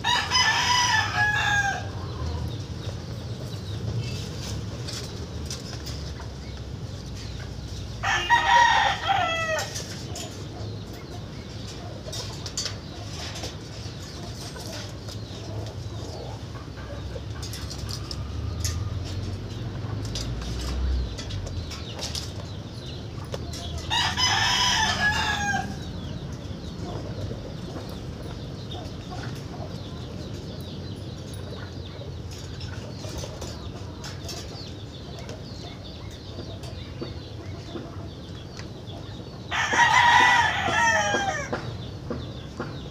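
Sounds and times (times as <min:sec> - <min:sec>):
rooster crowing: 0:00.0 - 0:02.0, 0:08.0 - 0:09.8, 0:23.9 - 0:25.9, 0:39.5 - 0:41.5.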